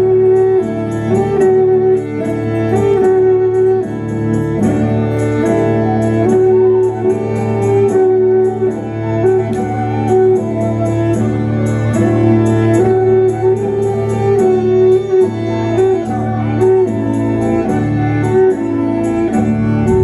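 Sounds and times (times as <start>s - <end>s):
instrumental folk melody: 0.0s - 20.0s
low bass drone: 19.3s - 20.0s.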